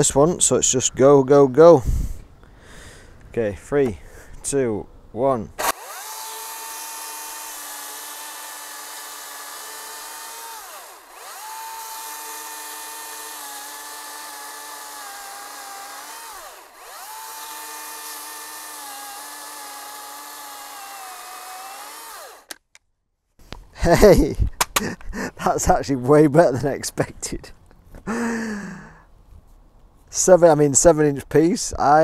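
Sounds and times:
electric chainsaw cutting log: 0:05.6 - 0:22.6.

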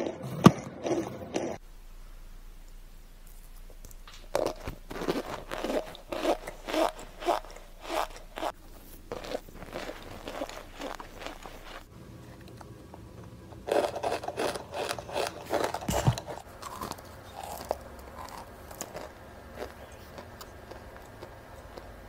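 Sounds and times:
crunchy food being chewed: 0:00.0 - 0:01.6, 0:03.2 - 0:12.6, 0:13.6 - 0:22.0.

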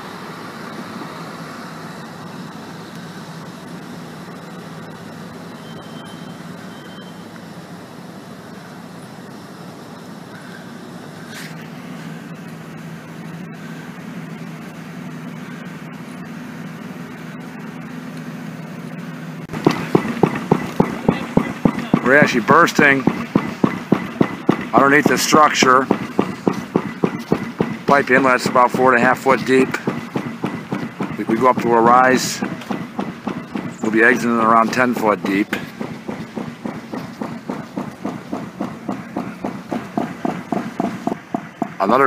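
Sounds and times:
engine humming: 0:00.0 - 0:42.0
short high beeps: 0:05.6 - 0:07.2.

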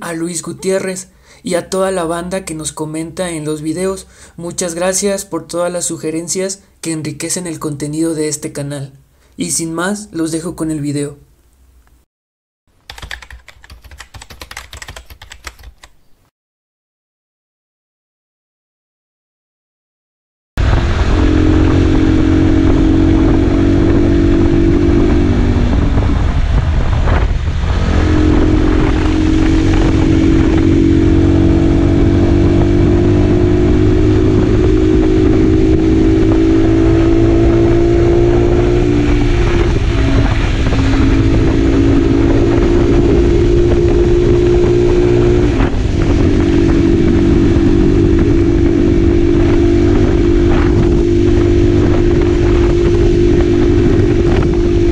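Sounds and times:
wind and road noise: 0:20.6 - 0:54.9
motorcycle engine running: 0:27.0 - 0:54.9.

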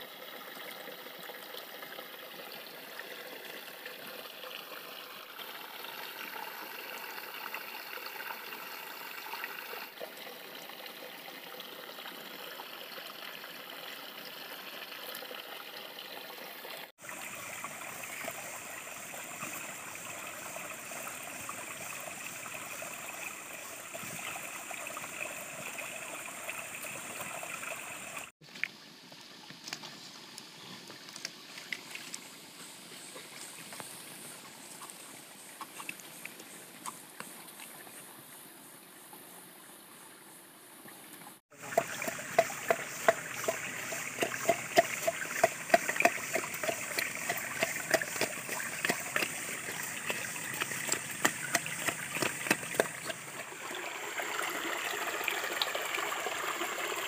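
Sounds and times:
flowing stream rushing: 0:41.5 - 0:57.0.

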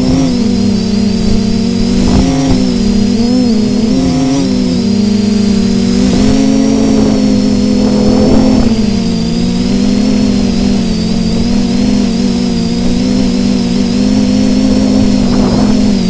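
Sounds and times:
drone propellers humming: 0:00.0 - 0:16.0
high motor whine: 0:00.0 - 0:16.0
wind buffeting: 0:00.6 - 0:16.0.

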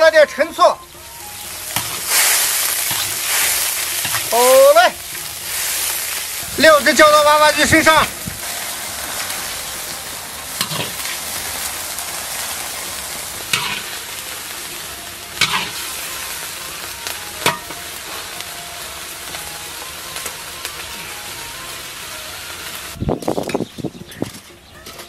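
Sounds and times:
hot oil sizzling: 0:00.0 - 0:24.5
metal ladle scraping a wok: 0:01.7 - 0:04.3, 0:10.5 - 0:14.1, 0:15.3 - 0:16.0.

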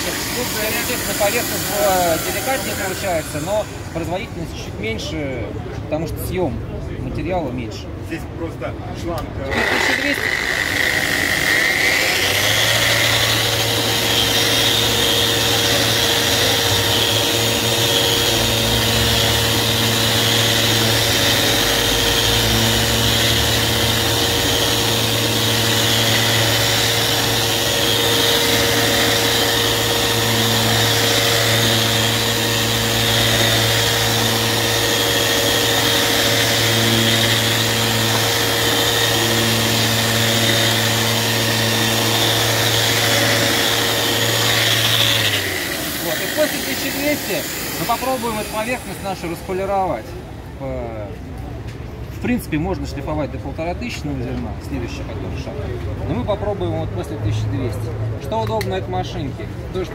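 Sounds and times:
orbital sander running: 0:00.0 - 0:04.4, 0:09.5 - 0:50.1.

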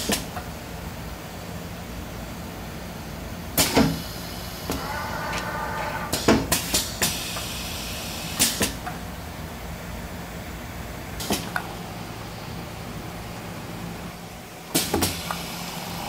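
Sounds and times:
machine humming: 0:04.1 - 0:06.2
machine whine: 0:04.2 - 0:06.2
hiss: 0:06.1 - 0:08.8, 0:14.7 - 0:16.0.

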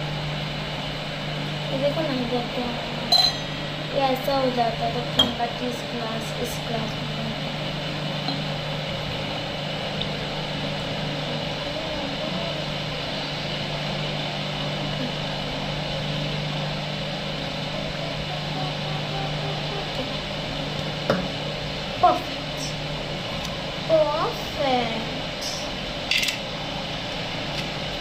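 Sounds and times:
appliance motor humming: 0:00.0 - 0:28.0.

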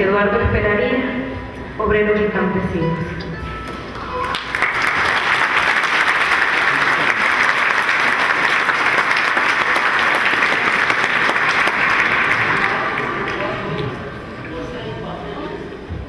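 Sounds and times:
audience applauding: 0:03.9 - 0:14.7.

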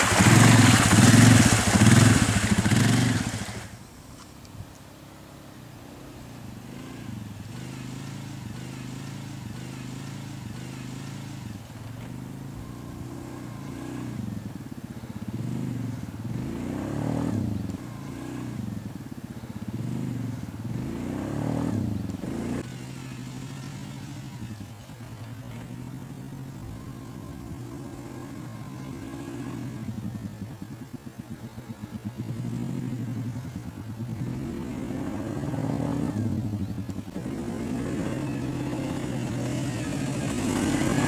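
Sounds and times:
quad bike engine revving: 0:00.0 - 0:03.8, 0:05.8 - 0:41.0.

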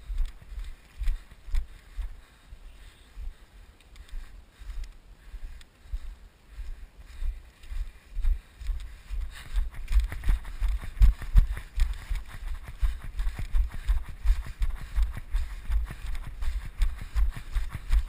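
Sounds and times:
footsteps through grass: 0:00.0 - 0:18.0.

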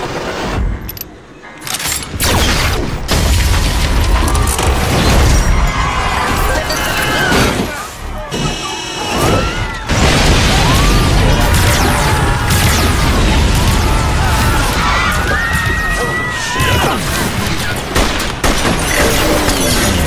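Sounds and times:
film music: 0:00.0 - 0:06.4
blasts and crashing: 0:02.0 - 0:20.0
explosion: 0:02.3 - 0:05.6, 0:09.9 - 0:15.8
gunfire: 0:17.1 - 0:19.8.

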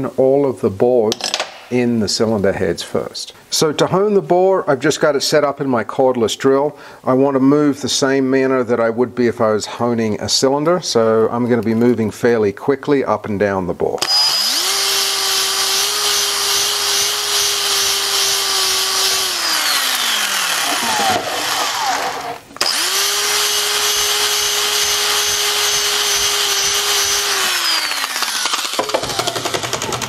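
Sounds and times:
drill honing metal with scraping hiss: 0:14.0 - 0:30.0.

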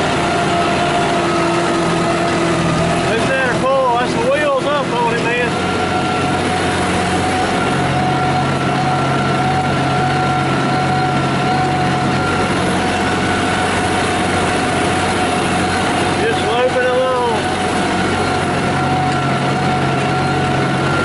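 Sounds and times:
steady whine: 0:00.0 - 0:21.0
tractor diesel engine under load: 0:00.0 - 0:21.0.

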